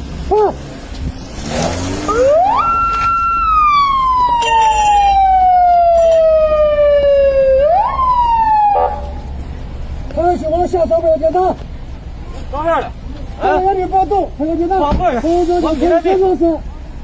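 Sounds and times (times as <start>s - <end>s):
police siren wailing: 2.1s - 9.3s.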